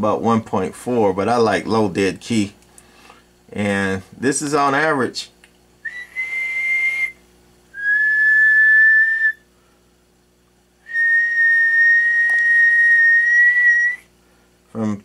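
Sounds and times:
faint steady hum: 0.0s - 15.0s
man whistling held notes: 5.8s - 7.2s, 7.8s - 9.4s, 10.8s - 14.1s.

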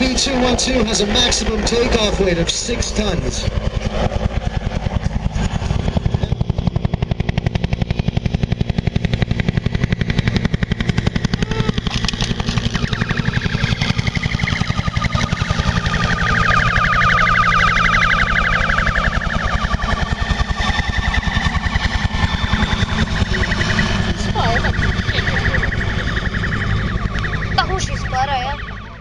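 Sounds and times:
helicopter rotor beating: 0.0s - 29.0s
turbine and tail-rotor whine: 0.0s - 29.0s.

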